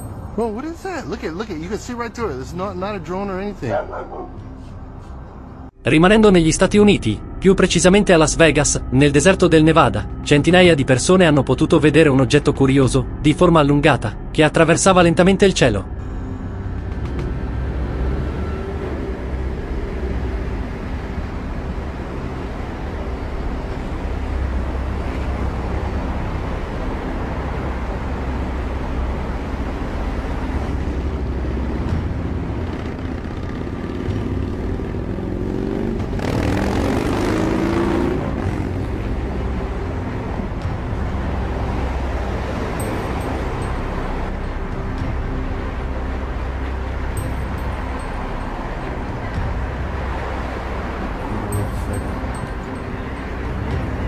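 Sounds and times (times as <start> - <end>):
low engine rumble: 38.2 - 54.0.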